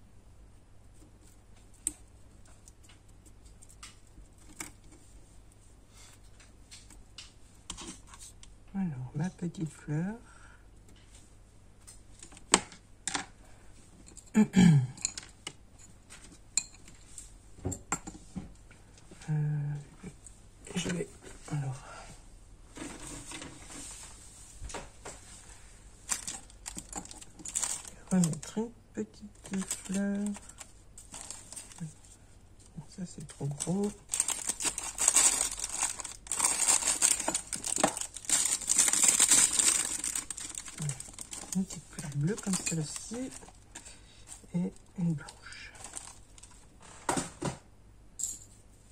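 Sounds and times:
paper flowers crinkling in plastic box: 0:26.0 - 0:46.7
craft tools clicking and clattering: 0:26.1 - 0:28.4.

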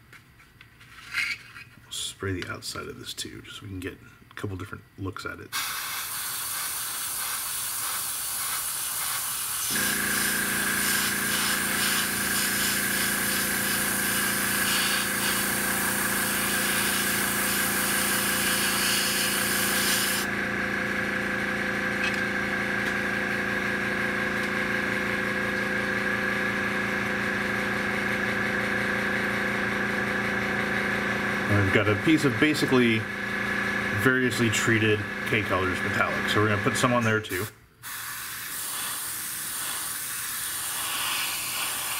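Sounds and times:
airbrush spraying hiss: 0:05.6 - 0:20.3, 0:37.8 - 0:41.9
compressor motor humming: 0:08.9 - 0:37.5.

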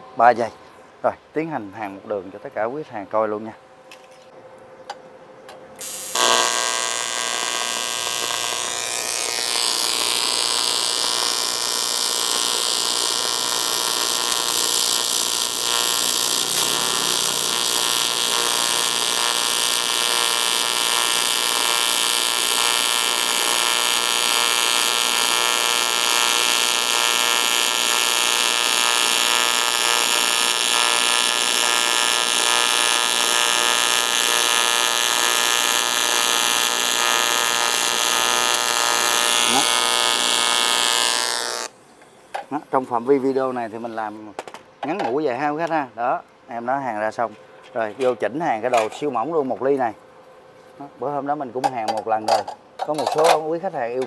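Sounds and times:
welding arc buzzing: 0:05.8 - 0:41.8.

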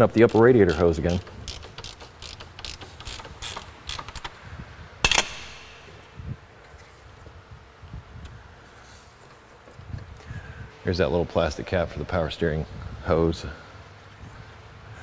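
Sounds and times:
hand ratchet clicking: 0:00.0 - 0:04.4, 0:05.1 - 0:06.1
sharp metallic clank: 0:05.0 - 0:06.2.

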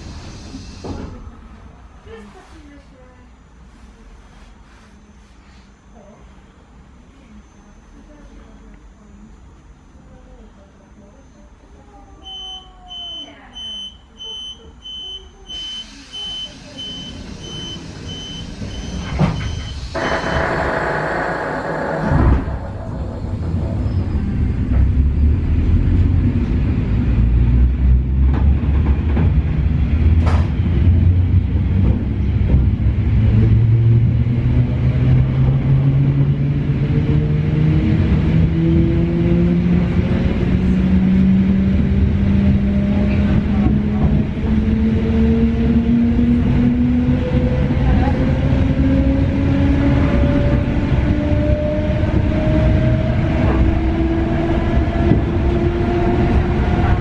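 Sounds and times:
train running gear rumble: 0:16.6 - 0:37.2, 0:37.8 - 0:57.0.

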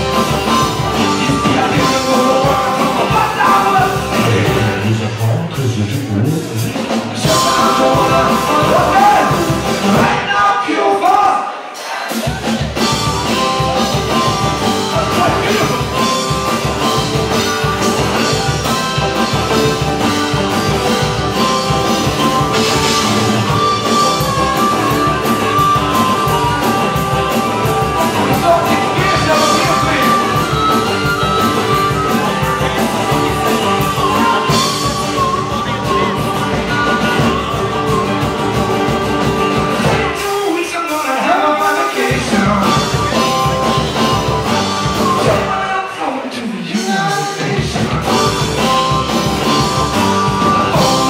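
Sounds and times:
man singing: 0:00.0 - 0:11.6, 0:14.7 - 0:16.3, 0:22.6 - 0:51.0
drum kit: 0:00.0 - 0:46.0, 0:46.6 - 0:51.0
strummed acoustic guitar: 0:12.9 - 0:41.0.

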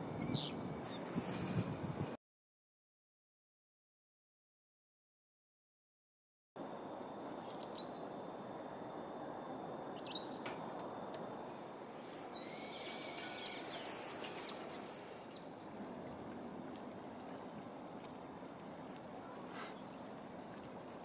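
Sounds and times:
sharp tick: 0:10.4 - 0:11.2
flowing river water: 0:11.4 - 0:21.0
kingfisher shrill calls: 0:12.3 - 0:15.5.

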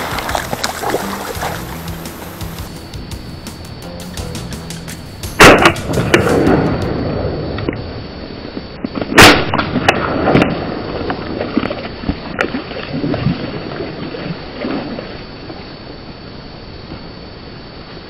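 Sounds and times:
rushing background noise: 0:00.0 - 0:09.1
shotgun shot: 0:05.4 - 0:07.1, 0:09.2 - 0:10.5.

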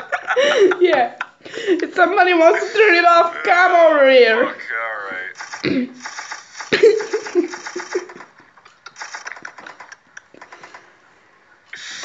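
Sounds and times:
cat chattering clicks: 0:05.4 - 0:10.8.

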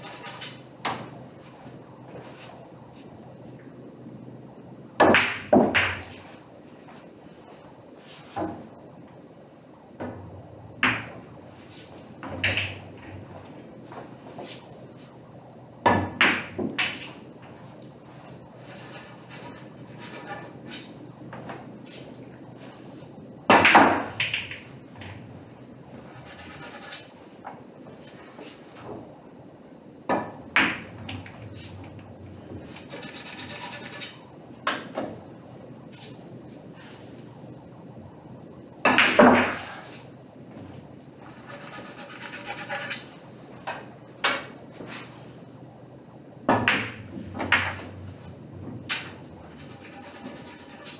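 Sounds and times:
pool balls clacking: 0:05.0 - 0:06.2, 0:12.2 - 0:13.3, 0:30.1 - 0:32.1, 0:38.8 - 0:39.9, 0:46.4 - 0:49.4
pool balls clicking: 0:12.2 - 0:13.3, 0:23.5 - 0:25.2, 0:46.4 - 0:48.1.

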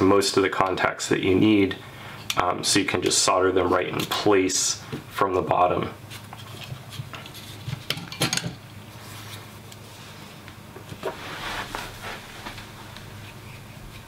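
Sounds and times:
faint low hum: 0:00.0 - 0:14.0
soft rub on desk mat: 0:08.9 - 0:14.0.

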